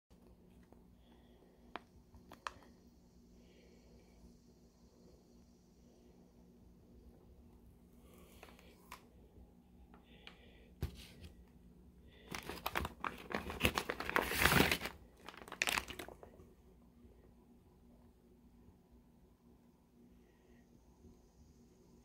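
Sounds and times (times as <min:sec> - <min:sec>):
plastic bags crinkling: 0:12.2 - 0:16.4.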